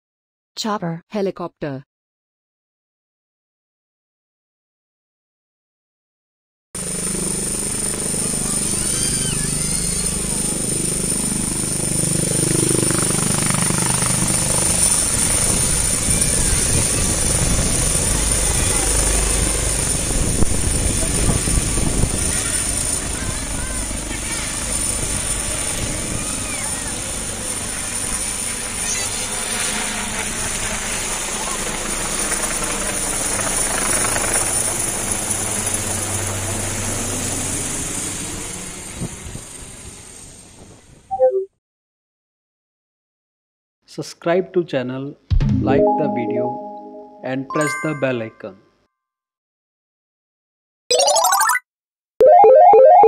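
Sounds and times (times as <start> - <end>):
helicopter lifting off: 6.8 - 40.6.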